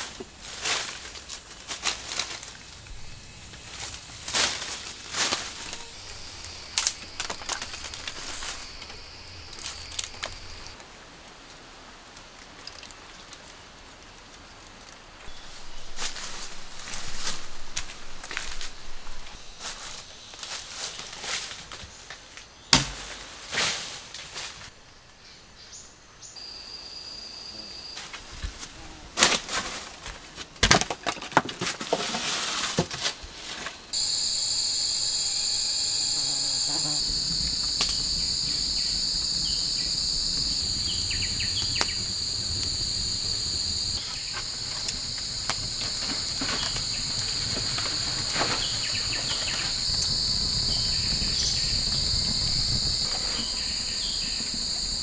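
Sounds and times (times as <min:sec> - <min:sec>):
rustling: 0:00.0 - 0:10.9, 0:12.4 - 0:24.7, 0:28.0 - 0:50.1
insects trilling: 0:01.6 - 0:10.8, 0:15.2 - 0:21.5, 0:25.6 - 0:29.1, 0:33.9 - 0:55.0.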